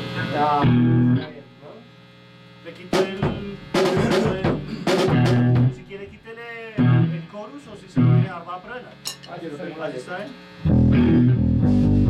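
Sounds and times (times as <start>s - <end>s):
mains hum: 0.0s - 12.0s
band playing: 2.9s - 6.2s, 6.8s - 7.2s, 7.9s - 8.3s, 10.6s - 12.0s
drum hits: 2.9s - 6.2s
low bass notes: 3.2s - 5.9s, 10.6s - 12.0s.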